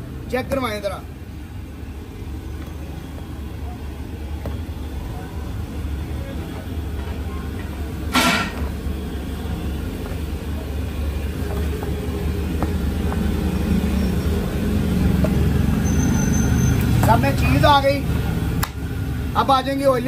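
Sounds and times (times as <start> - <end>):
low background rumble: 0.0 - 15.8.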